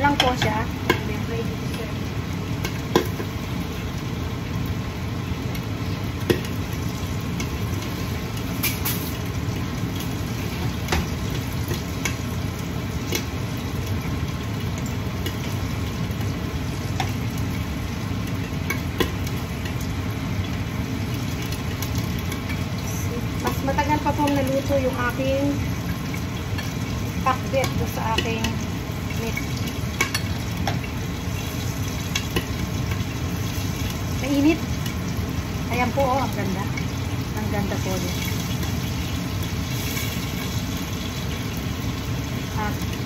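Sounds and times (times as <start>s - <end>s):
pork sizzling in a pan: 0.0s - 43.0s
range hood fan whirring: 0.0s - 43.0s.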